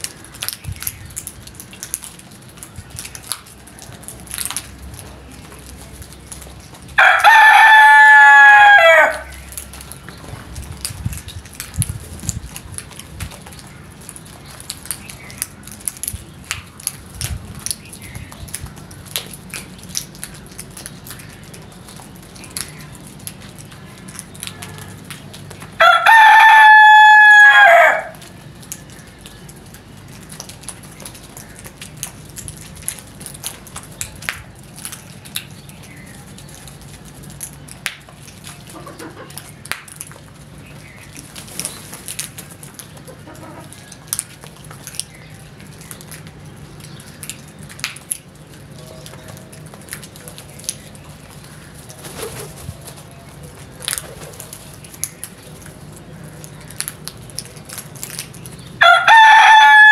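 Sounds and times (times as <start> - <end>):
birds pecking grain off concrete: 0.0 - 59.9
rooster crowing: 7.0 - 9.3, 25.8 - 28.2, 58.8 - 59.9.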